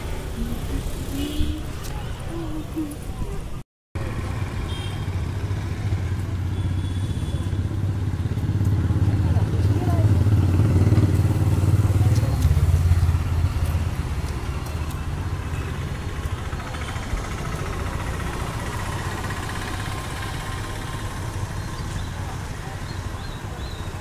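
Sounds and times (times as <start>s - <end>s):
street background noise: 0.0s - 24.0s
motorcycle engine passing: 4.2s - 14.7s, 15.3s - 21.8s.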